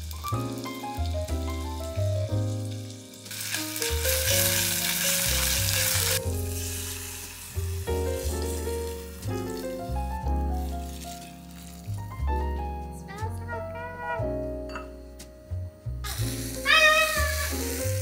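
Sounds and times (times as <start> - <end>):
meat sizzling in a pot: 0.0 - 12.3, 16.0 - 18.0
background music: 0.0 - 18.0.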